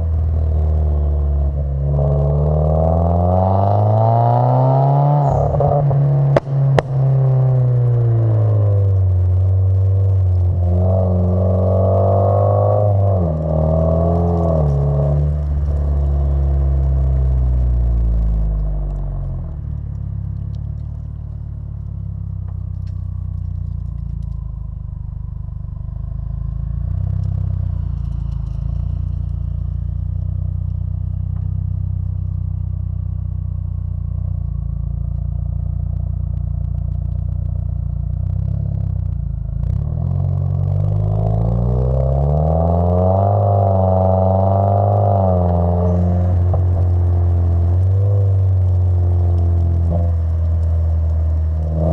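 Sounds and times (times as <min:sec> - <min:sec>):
car exhaust while driving: 0:00.0 - 0:51.9.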